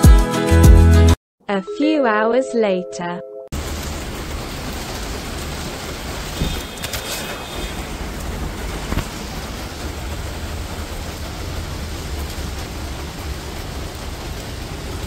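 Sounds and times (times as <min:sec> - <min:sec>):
steady rain: 0:03.6 - 0:15.0.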